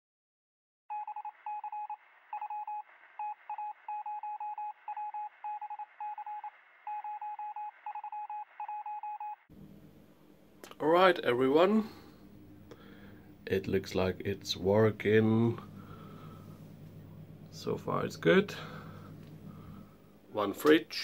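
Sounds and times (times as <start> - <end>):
electronic beeps: 0.9 - 9.4
faint room noise: 9.5 - 21.0.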